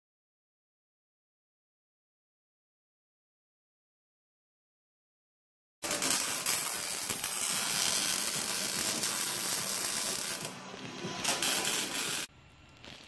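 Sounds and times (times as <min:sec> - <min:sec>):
arc welder crackling: 0:05.8 - 0:13.0.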